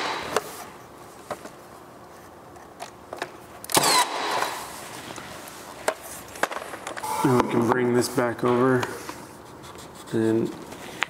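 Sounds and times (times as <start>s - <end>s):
nail gun firing: 0.0s - 0.5s, 3.7s - 4.7s.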